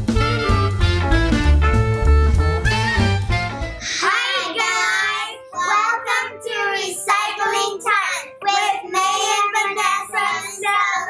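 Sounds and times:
girls singing together: 3.9s - 11.0s.

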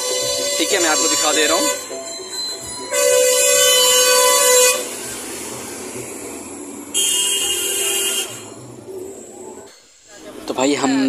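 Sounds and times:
roadside traffic hiss: 0.0s - 11.0s
vehicle horn blast: 2.9s - 5.0s, 6.9s - 8.6s.

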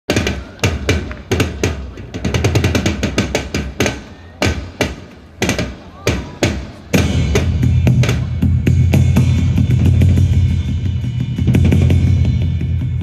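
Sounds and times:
fast drum kit playing: 0.1s - 13.0s
cymbals ringing: 6.5s - 13.0s.

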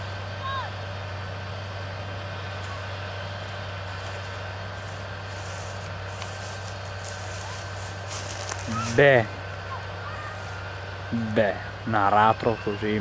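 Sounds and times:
tractor diesel engine running: 0.0s - 13.0s
light rustling crackle: 3.8s - 10.7s.

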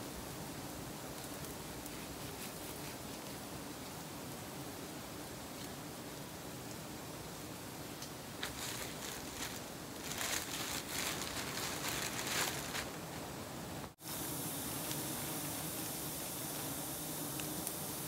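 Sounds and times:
steady hiss: 0.0s - 18.0s
branches rustling: 8.0s - 14.0s
plastic bag crinkling: 8.4s - 13.0s.

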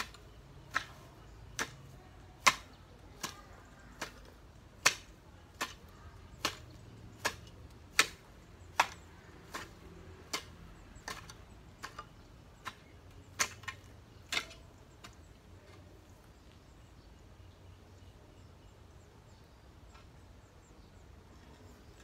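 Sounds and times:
hoe chopping into soil: 0.0s - 16.0s.

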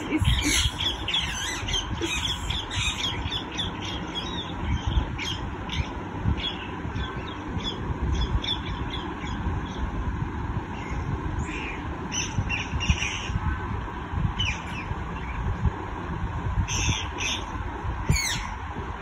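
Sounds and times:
parrots squawking: 0.0s - 3.7s.

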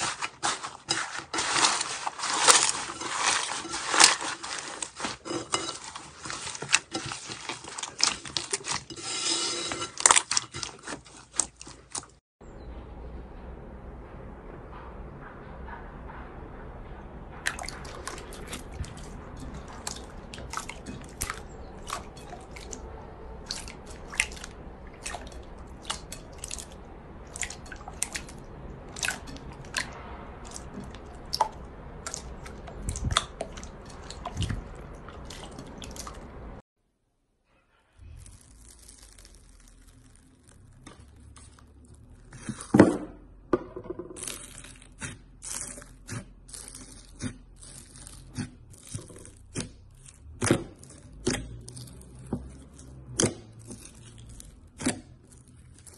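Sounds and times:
hands kneading wet slime: 0.0s - 12.2s, 17.5s - 36.6s, 38.1s - 42.7s, 44.2s - 55.9s
slime crackling: 0.0s - 12.2s, 38.0s - 42.7s, 44.2s - 55.9s.

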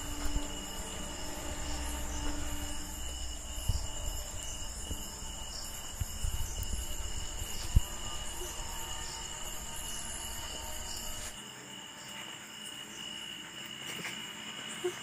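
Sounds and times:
low rumble: 0.0s - 11.4s
crickets chirring: 0.0s - 15.0s.

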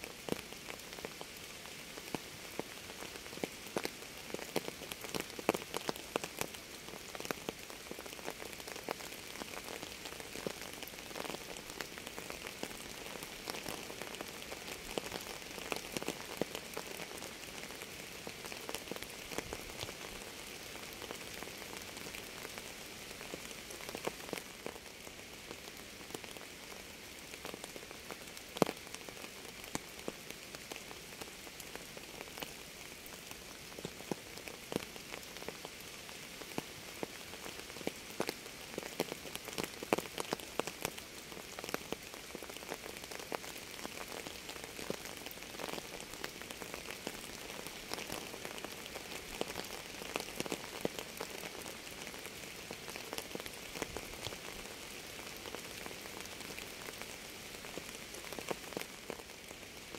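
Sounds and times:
raindrops striking close by: 0.0s - 59.9s
steady rain falling: 0.0s - 59.9s.

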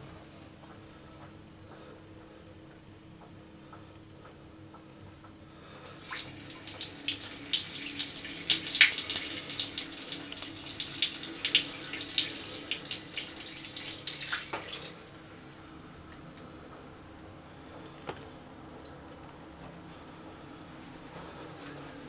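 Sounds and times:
liquid splashing into toilet: 6.0s - 15.2s.

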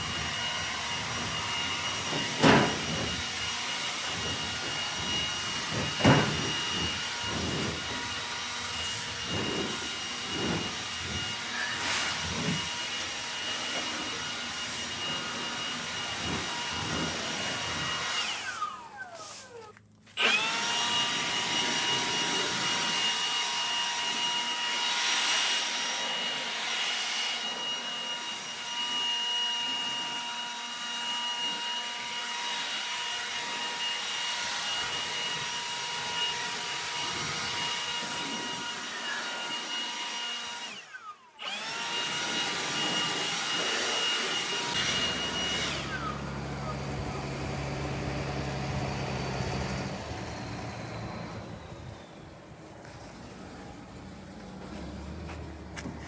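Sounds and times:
vacuum cleaner motor whining: 0.0s - 56.0s.

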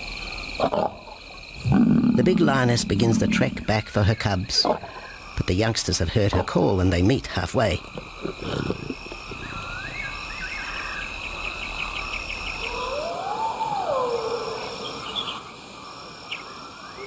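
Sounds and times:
short insect chirps: 0.0s - 5.4s
insect chorus trilling: 0.0s - 17.0s.

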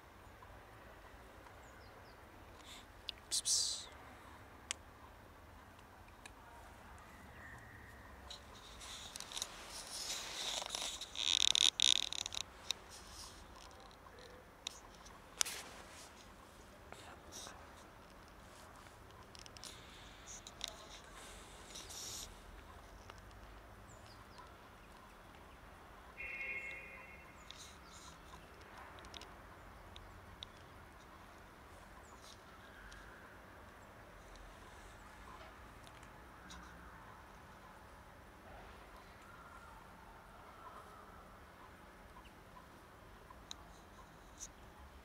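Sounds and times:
scratchy rustle: 8.2s - 23.0s.

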